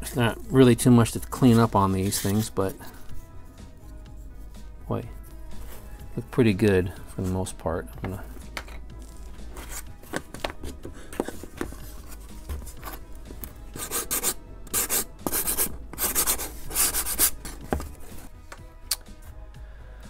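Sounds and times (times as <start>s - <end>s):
sanding block rubbing wood: 13.8s - 17.5s.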